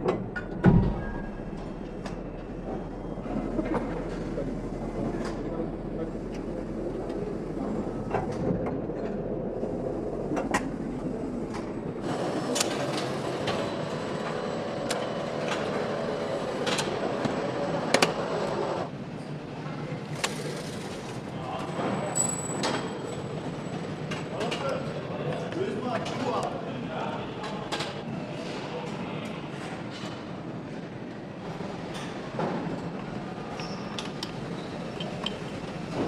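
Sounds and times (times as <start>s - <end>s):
multi-tone machine hum: 0.0s - 19.2s
factory machinery running: 0.0s - 36.0s.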